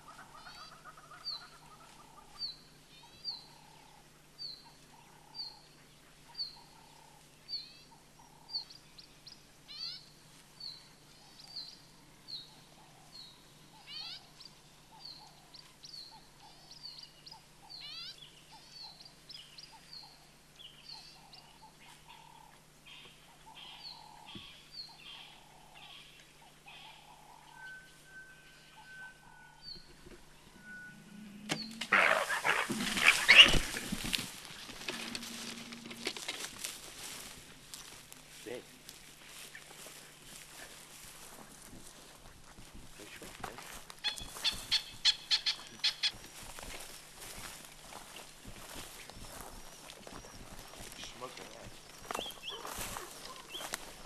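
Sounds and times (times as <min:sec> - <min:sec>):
lower repeated bird call: 0:22.1 - 0:36.4, 0:44.0 - 0:54.0
high falling bird call: 0:26.8 - 0:38.0, 0:44.0 - 0:54.0
rising bird whistles: 0:30.4 - 0:33.6.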